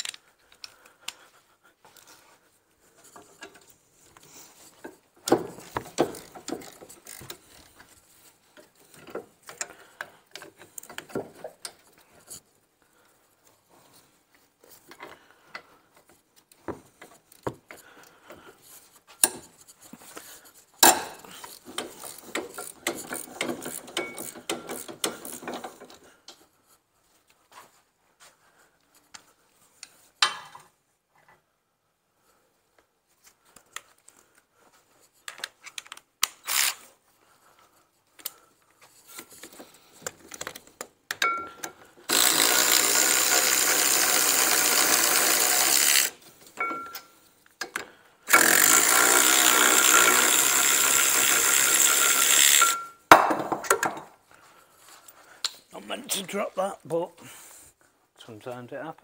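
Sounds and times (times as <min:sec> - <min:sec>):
knocks and tool clatter: 0:01.8 - 0:12.5, 0:13.5 - 0:27.8, 0:28.9 - 0:31.4, 0:37.7 - 0:42.2, 0:46.2 - 0:48.0, 0:52.6 - 0:55.7
hand ratchet clicking: 0:05.3 - 0:07.8, 0:20.8 - 0:26.0, 0:35.8 - 0:36.8, 0:41.2 - 0:46.2, 0:47.6 - 0:53.0
cordless power tool running: 0:42.1 - 0:46.2, 0:48.3 - 0:52.8.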